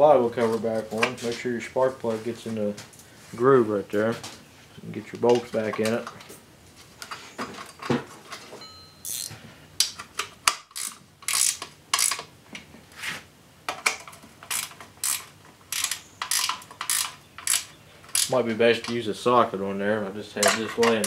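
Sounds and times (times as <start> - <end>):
ratcheting wrench clicking: 9.1 - 9.3, 10.5 - 12.3, 14.4 - 18.3.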